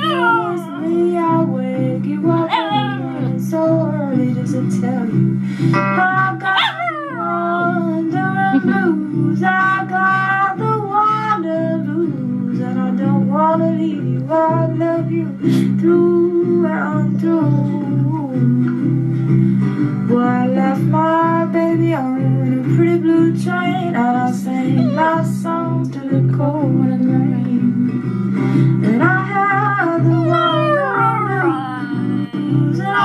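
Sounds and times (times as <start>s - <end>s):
dog howling: 0.0s - 1.4s, 2.2s - 3.4s, 6.5s - 7.7s, 24.7s - 25.3s, 29.8s - 33.0s
acoustic folk song: 0.0s - 33.0s
guitar playing: 0.0s - 33.0s.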